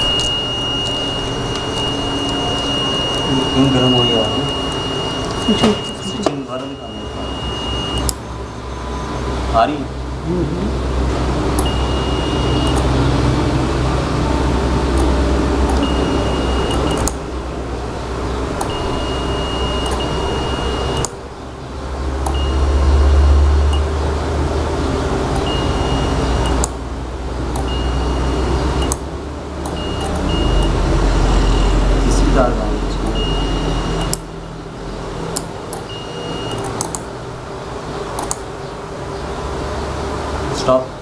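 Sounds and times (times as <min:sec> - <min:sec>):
high thin tone: 0:00.0 - 0:08.1
electrical hum: 0:00.0 - 0:41.0
relays clicking: 0:35.3 - 0:37.1, 0:38.2 - 0:38.4.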